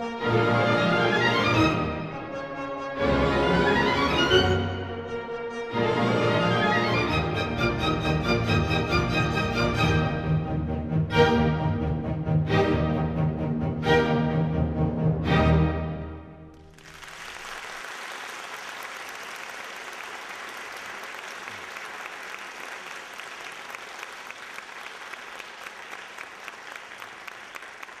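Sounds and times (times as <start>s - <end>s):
audience applauding: 16.5s - 28.0s.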